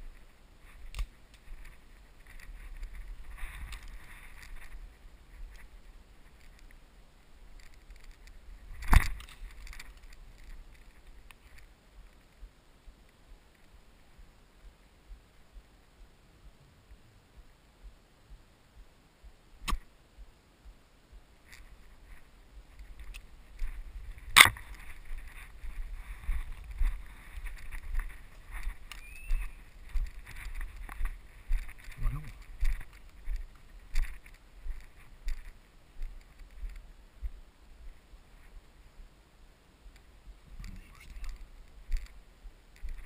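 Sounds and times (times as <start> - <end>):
footsteps through dry brush: 0.0 - 6.8, 21.4 - 38.5
sharp crack: 19.6 - 19.9, 24.2 - 24.8.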